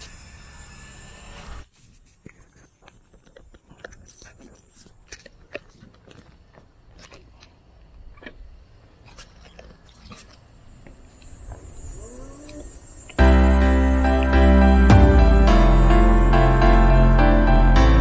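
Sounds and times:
thin high whine: 0:00.0 - 0:01.8, 0:10.5 - 0:18.0
background music: 0:13.2 - 0:18.0.

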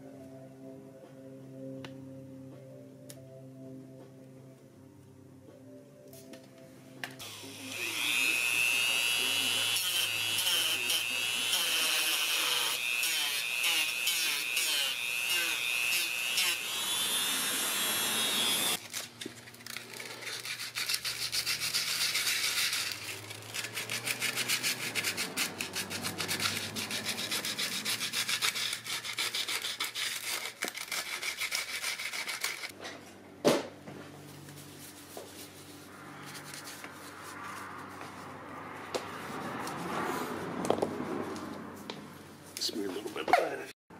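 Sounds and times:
rotary tool grinding plastic: 0:09.8 - 0:32.7
sandpaper rubbing plastic: 0:19.7 - 0:32.7, 0:34.6 - 0:38.1.

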